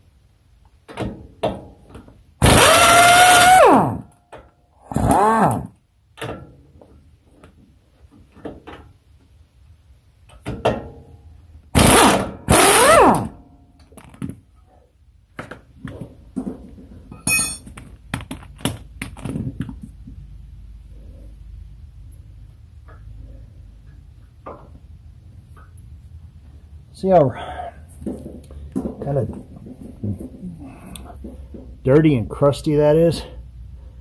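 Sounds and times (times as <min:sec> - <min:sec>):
pneumatic wrench spinning: 0:02.4 - 0:04.1, 0:04.9 - 0:05.7, 0:11.8 - 0:13.3
metal knocks and clinks: 0:17.1 - 0:19.4.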